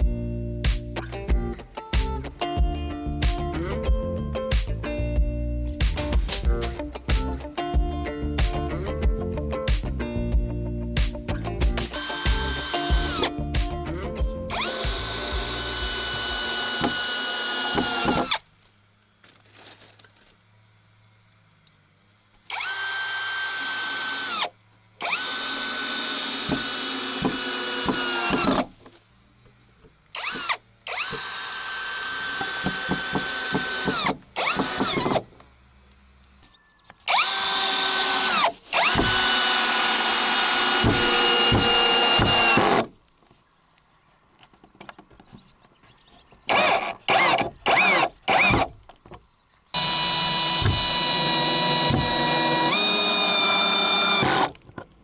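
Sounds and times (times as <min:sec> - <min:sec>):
cordless drill whine: 0:11.9 - 0:13.4, 0:14.5 - 0:18.4, 0:22.5 - 0:28.7, 0:30.2 - 0:35.2, 0:37.0 - 0:42.9, 0:46.5 - 0:48.7, 0:49.8 - 0:54.6.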